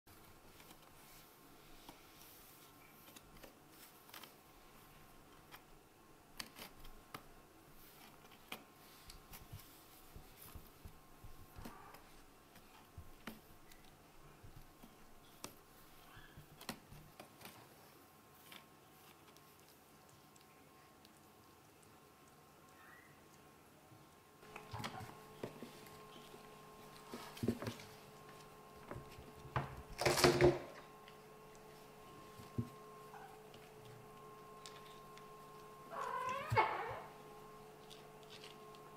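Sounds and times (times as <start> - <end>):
kittens scuffling on wooden floor: 6.4 - 20.0, 24.4 - 38.9.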